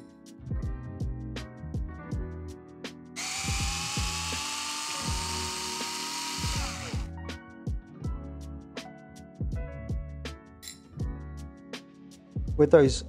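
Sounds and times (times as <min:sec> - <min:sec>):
background music with steady beat: 0:00.0 - 0:13.0
electric screwdriver whining: 0:03.2 - 0:07.1.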